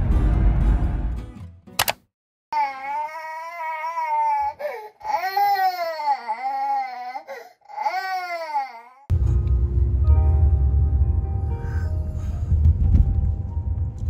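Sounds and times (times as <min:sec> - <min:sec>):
music: 0:00.0 - 0:01.8, 0:09.1 - 0:14.0
baby crying: 0:02.6 - 0:09.1.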